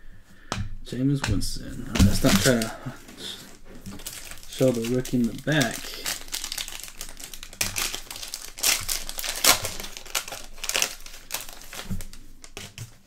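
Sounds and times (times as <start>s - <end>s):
foil wrapper crinkling: 1.8s - 13.0s.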